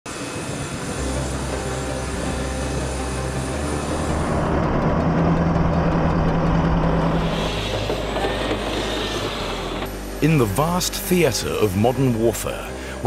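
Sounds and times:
aircraft turbine engine whine: 0:00.0 - 0:13.0
low engine hum: 0:00.9 - 0:10.2.

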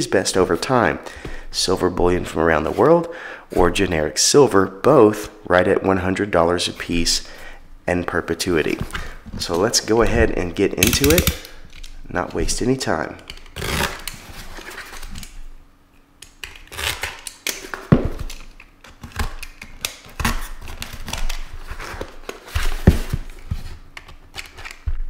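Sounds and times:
tape clicking: 0:10.8 - 0:12.0.

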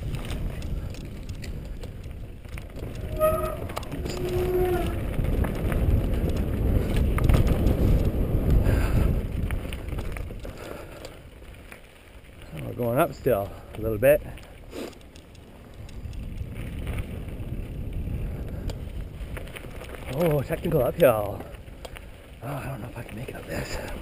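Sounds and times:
bike rattle: 0:00.0 - 0:24.0
bike tyres rumbling on dirt: 0:00.0 - 0:24.0.

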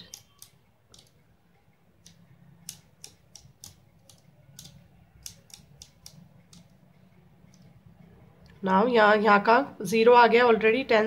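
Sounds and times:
abacus beads clicking: 0:00.0 - 0:07.8.

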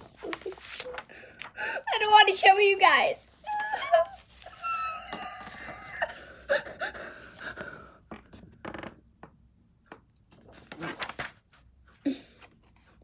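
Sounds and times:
paper rustling: 0:00.0 - 0:01.6, 0:10.3 - 0:13.0.

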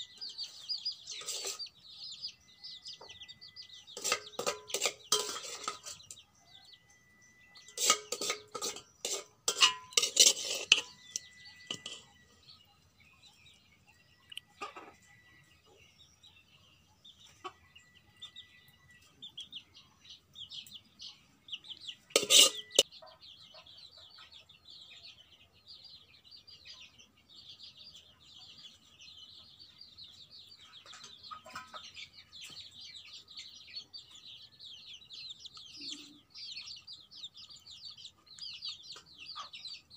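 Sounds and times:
chicks peeping: 0:00.0 - 0:39.9
spoon clinking on steel pot: 0:03.5 - 0:06.2, 0:07.5 - 0:12.2, 0:22.1 - 0:22.9.

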